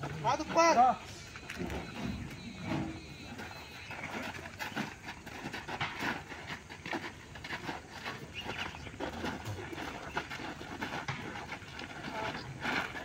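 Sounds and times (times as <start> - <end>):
footsteps on gravelly ground: 0.0 - 13.0.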